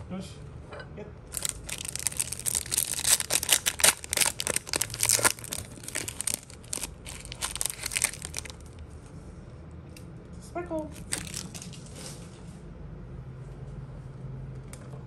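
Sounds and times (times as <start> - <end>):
plastic packaging crackling: 1.3 - 8.8, 10.9 - 11.9.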